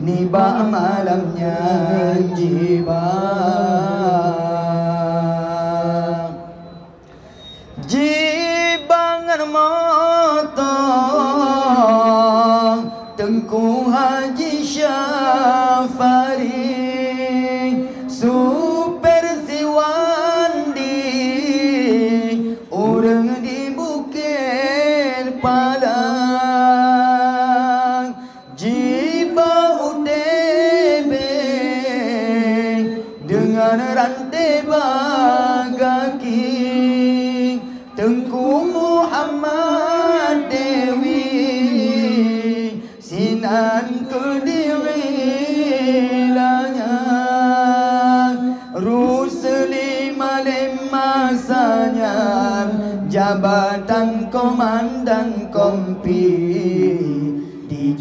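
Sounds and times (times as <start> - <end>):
men chanting unaccompanied: 10.0 - 58.0.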